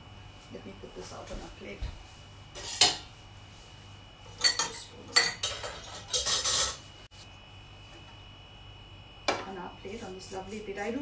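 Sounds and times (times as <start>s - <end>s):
cutlery and dishes clinking: 4.4s - 6.8s.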